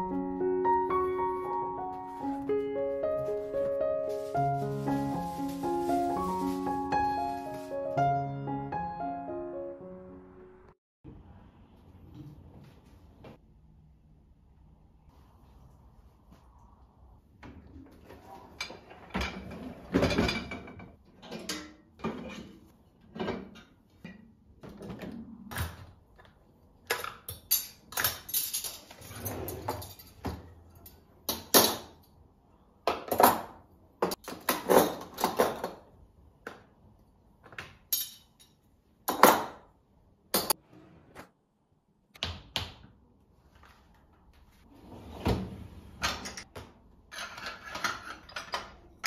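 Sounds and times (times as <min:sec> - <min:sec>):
cutlery and dishes clinking: 0:26.9 - 0:32.0, 0:47.1 - 0:48.8.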